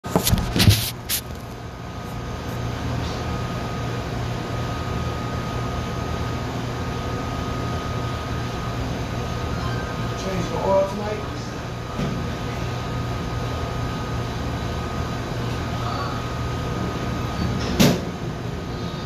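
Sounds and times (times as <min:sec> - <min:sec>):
exhaust fan humming: 0:00.0 - 0:19.0.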